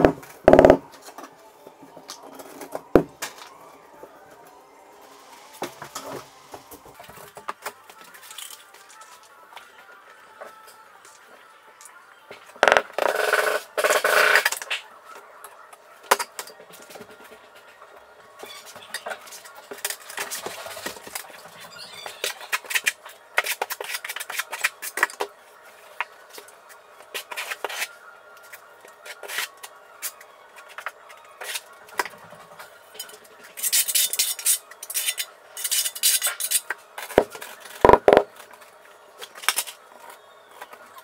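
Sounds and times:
rattling scrape of tools: 32.9s - 36.7s.

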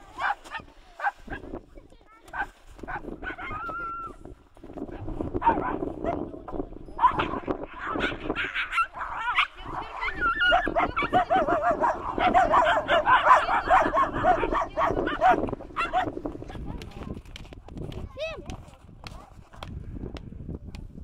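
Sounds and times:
dogs yelping and barking: 7.0s - 16.1s.

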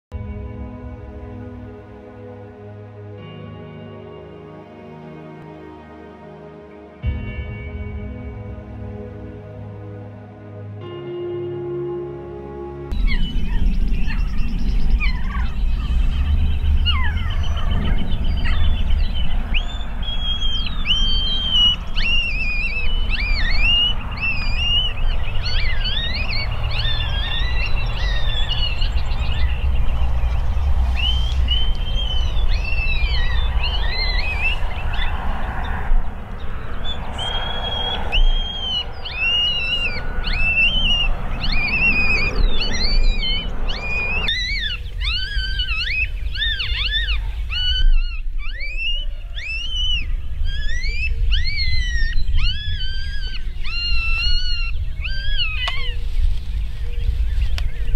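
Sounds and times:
coyotes yelping and whining: 12.9s - 29.6s, 36.6s - 57.2s
wind rumble on microphone: 12.9s - 57.9s.

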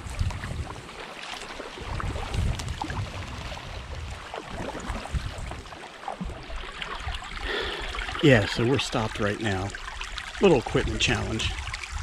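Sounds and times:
wind buffeting microphone: 0.0s - 1.0s, 1.8s - 7.5s, 10.7s - 12.0s
paddle drips and splashes: 0.0s - 12.0s
water lapping at kayak bow: 0.0s - 12.0s.

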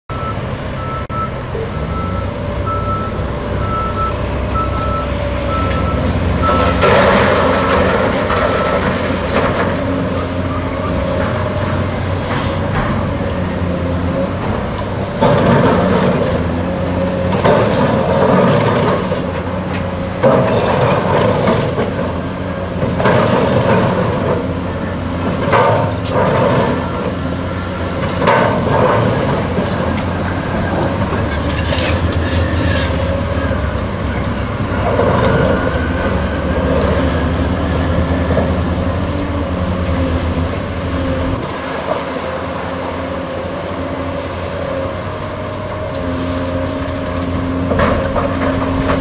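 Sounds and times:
backup alarm beeping: 0.1s - 6.8s
excavator diesel engine under load: 0.1s - 49.0s.

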